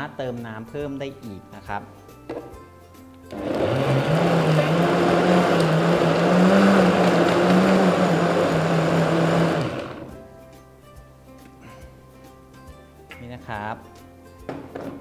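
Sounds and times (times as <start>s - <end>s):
blender motor running: 3.3s - 10.2s.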